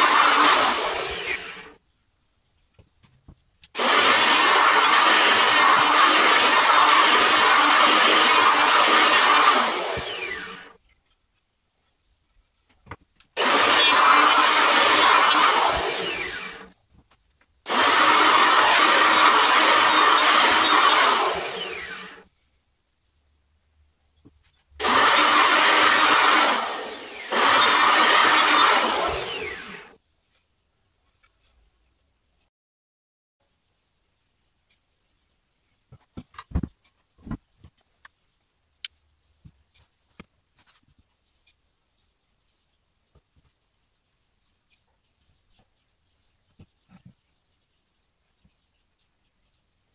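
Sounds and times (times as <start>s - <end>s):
electric planer planing wood: 0.0s - 1.8s, 3.8s - 10.7s, 13.4s - 16.7s, 17.7s - 22.2s, 24.8s - 29.9s.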